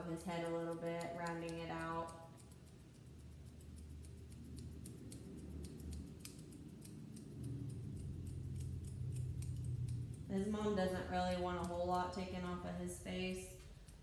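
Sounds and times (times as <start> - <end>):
low steady hum: 0.0 - 14.0
grooming shears snipping: 0.1 - 14.0.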